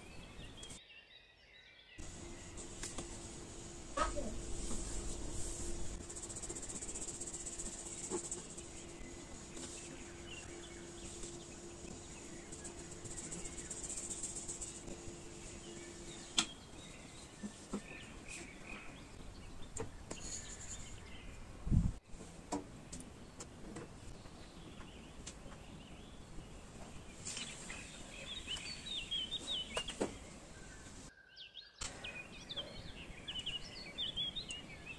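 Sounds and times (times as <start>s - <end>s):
flour rustling through a sieve: 2.0s - 18.1s.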